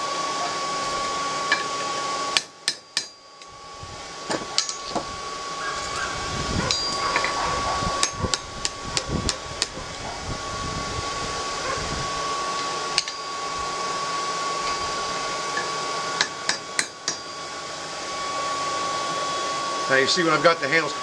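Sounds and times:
hammer striking tongs on anvil: 2.4 - 3.5, 4.3 - 5.0, 13.0 - 13.3, 15.6 - 17.3.

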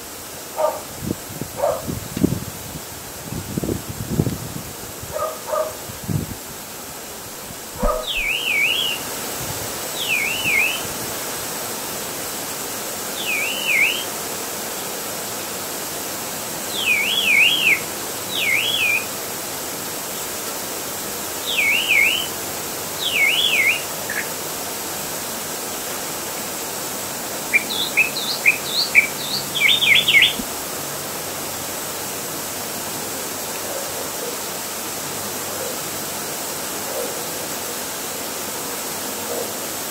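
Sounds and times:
background hiss: 0.0 - 39.9
songbird warbling: 7.7 - 9.1, 10.0 - 10.9, 13.2 - 14.1, 16.7 - 19.1, 21.4 - 22.4, 23.0 - 24.4, 27.4 - 30.5
short bird chirps: 7.8 - 9.0.

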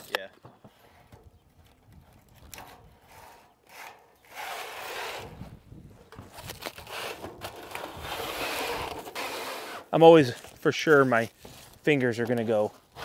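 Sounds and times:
scraping on corrugated metal roof: 2.5 - 10.0.

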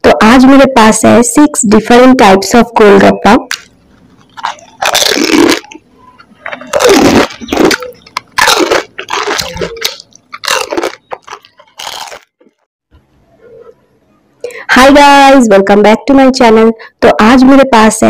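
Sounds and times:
crisp shells crunching: 3.5 - 5.8, 6.4 - 12.4.

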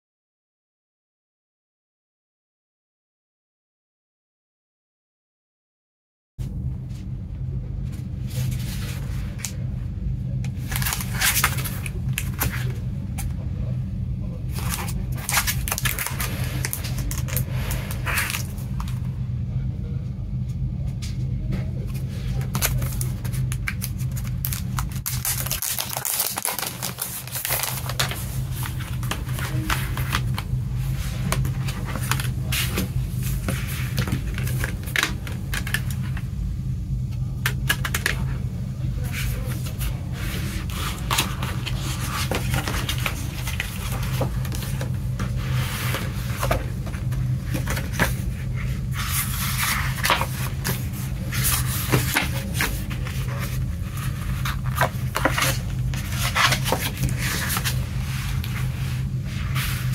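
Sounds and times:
steady low hum: 6.4 - 59.9
paper booklet rustling: 10.5 - 13.3, 14.5 - 19.0, 21.9 - 36.2, 39.0 - 59.9.

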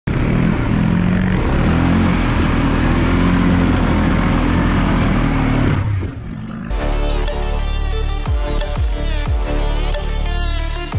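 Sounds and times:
atv engine running under load: 0.1 - 7.2.

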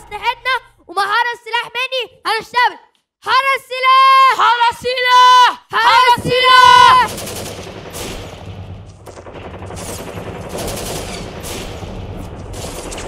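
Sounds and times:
automatic gunfire sound effect: 7.0 - 13.0.

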